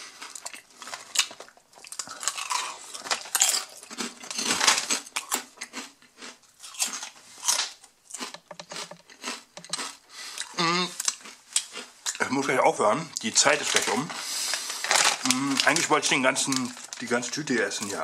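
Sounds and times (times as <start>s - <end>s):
crunchy chips being chewed: 0.0s - 12.3s, 13.5s - 18.0s.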